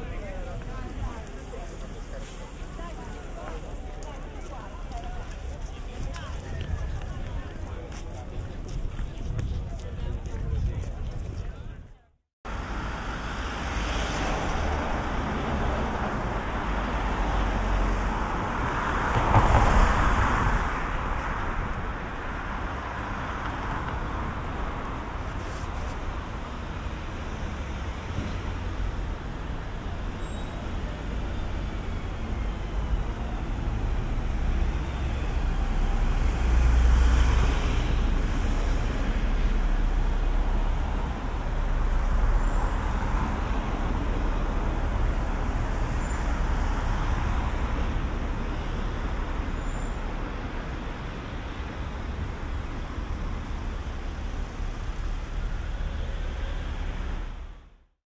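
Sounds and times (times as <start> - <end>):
louder vehicles passing: 12.5 - 57.7
cars going by: 12.5 - 57.8.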